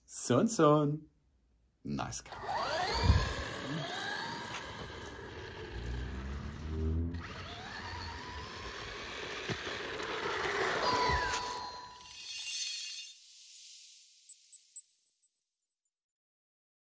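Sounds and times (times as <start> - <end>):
electric motor whining: 2.3 - 12.0.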